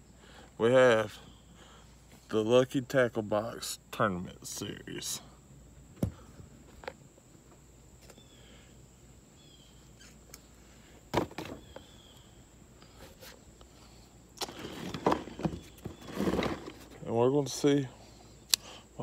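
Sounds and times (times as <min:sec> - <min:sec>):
faint bird chirps: 0:00.0 - 0:02.0, 0:08.0 - 0:14.2.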